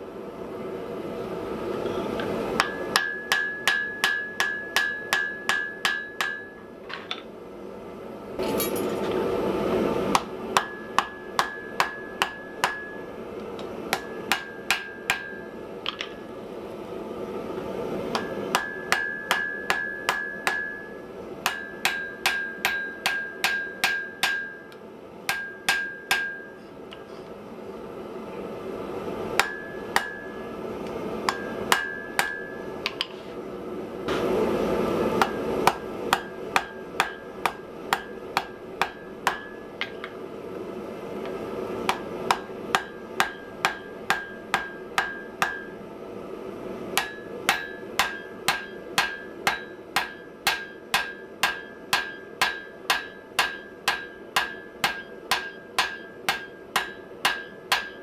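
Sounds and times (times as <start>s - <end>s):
hammer striking iron on anvil: 2.6s - 7.2s, 10.1s - 13.1s, 13.9s - 16.2s, 18.1s - 26.6s, 29.4s - 30.4s, 31.2s - 33.1s, 35.2s - 40.2s, 41.8s - 45.8s, 47.0s - 58.0s.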